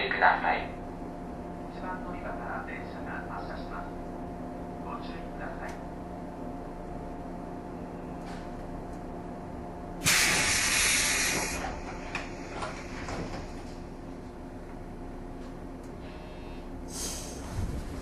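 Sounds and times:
electric train equipment hum: 0:00.0 - 0:18.0
compressed air hiss: 0:10.0 - 0:13.1, 0:16.9 - 0:17.6.

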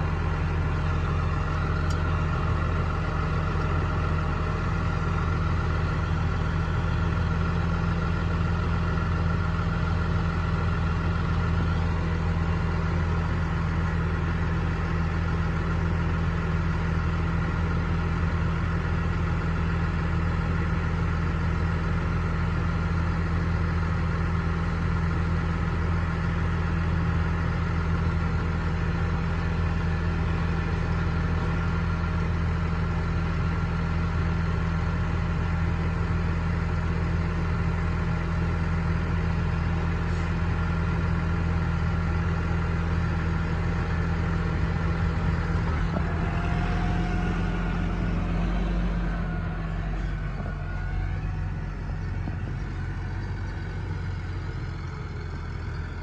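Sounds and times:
tractor diesel engine idling: 0:00.0 - 0:56.0.

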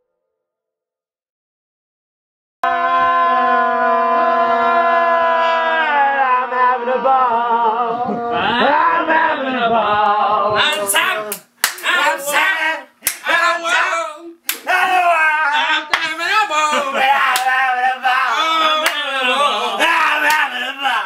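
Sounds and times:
man wailing and crying: 0:13.3 - 0:21.0.

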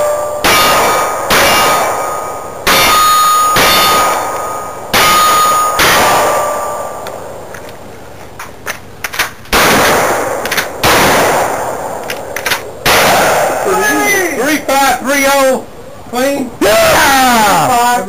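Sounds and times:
steel target ringing: 0:00.0 - 0:07.5
gunshots: 0:00.4 - 0:07.0, 0:09.2 - 0:14.4
metallic clicks of gun action: 0:12.0 - 0:12.7.

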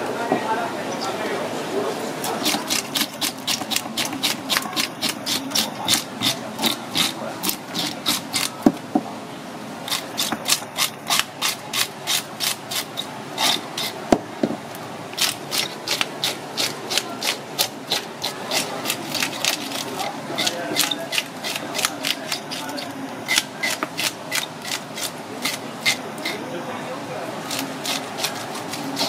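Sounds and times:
brush scraping fish scales: 0:02.2 - 0:08.7, 0:09.9 - 0:14.1, 0:15.2 - 0:26.5, 0:27.4 - 0:29.0
sharp knocks: 0:14.1 - 0:14.6.

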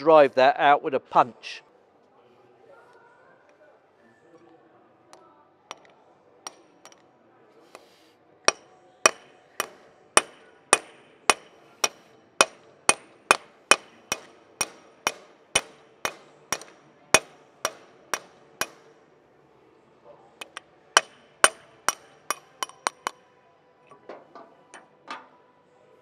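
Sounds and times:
hammer striking steel punch: 0:05.7 - 0:05.9, 0:06.5 - 0:07.0, 0:08.5 - 0:19.1, 0:20.4 - 0:23.2.

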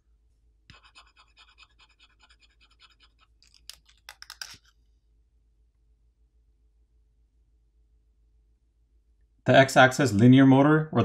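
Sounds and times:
phone parts scratching and clicking: 0:00.7 - 0:04.8.

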